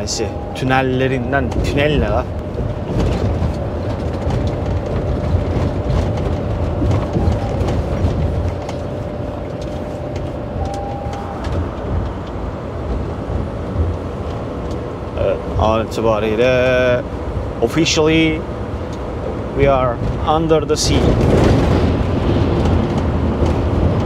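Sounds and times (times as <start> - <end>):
brief higher tone: 0.0 - 1.3, 10.5 - 11.5
truck engine and road drone: 0.0 - 24.0.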